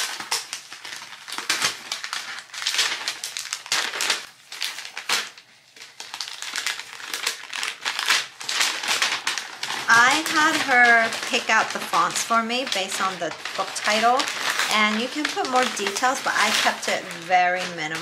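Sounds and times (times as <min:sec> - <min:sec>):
paper envelope rustling: 0:00.0 - 0:18.0.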